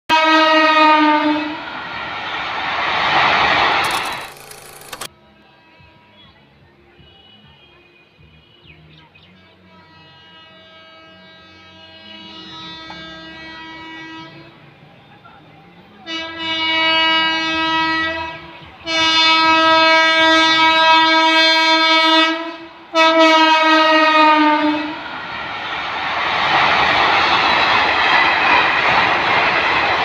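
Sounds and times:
locomotive horn blasts: 0:00.1 - 0:01.6, 0:09.6 - 0:14.6, 0:16.0 - 0:25.0
train coaches running on rails: 0:00.1 - 0:30.0.

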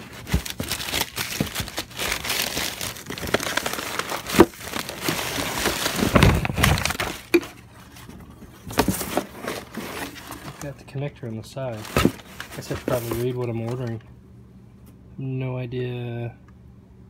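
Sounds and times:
newspaper rustling and crackling: 0:00.0 - 0:10.7, 0:11.7 - 0:13.9.

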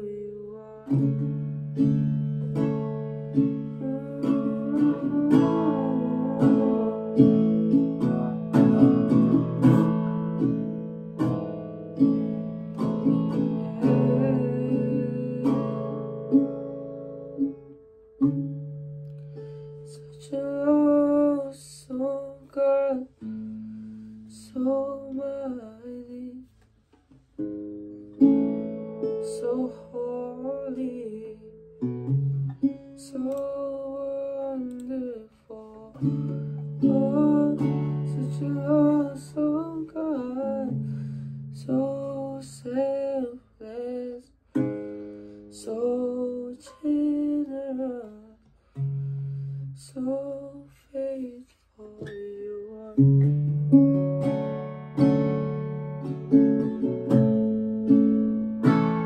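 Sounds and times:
young man singing: 0:00.0 - 0:10.1, 0:12.8 - 0:16.6, 0:19.8 - 0:23.5, 0:24.3 - 0:26.5, 0:29.0 - 0:31.6, 0:32.9 - 0:44.8, 0:45.5 - 0:48.5, 0:49.7 - 0:53.4
guitar chords: 0:00.0 - 0:26.2, 0:26.9 - 0:43.4, 0:44.5 - 0:49.8, 0:52.0 - 0:59.0.

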